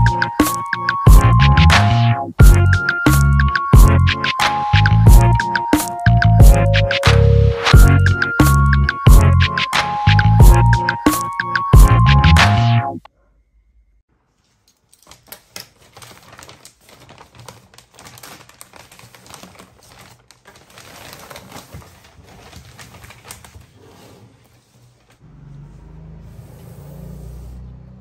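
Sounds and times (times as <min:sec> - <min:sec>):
plastic bag rustling: 0:14.2 - 0:25.2.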